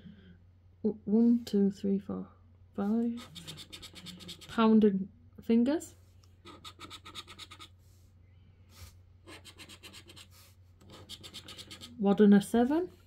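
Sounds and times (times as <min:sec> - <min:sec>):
scratchcard being scratched: 0:03.2 - 0:04.6, 0:06.4 - 0:07.7, 0:09.3 - 0:12.0.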